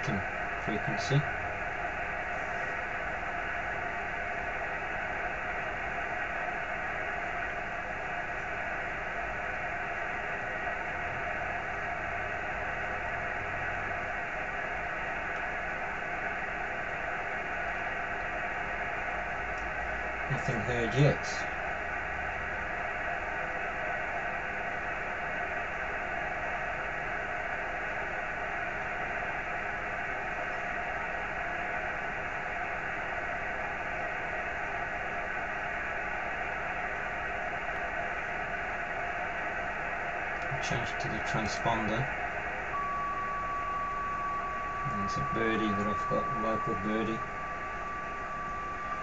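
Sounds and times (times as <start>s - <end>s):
radio static hiss: 0.0s - 22.0s, 35.6s - 49.0s.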